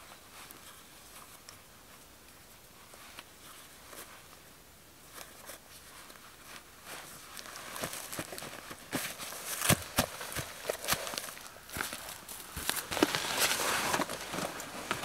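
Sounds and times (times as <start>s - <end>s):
bootlaces rustling: 2.8s - 15.0s
dry leaves crunching under boots: 7.1s - 15.0s.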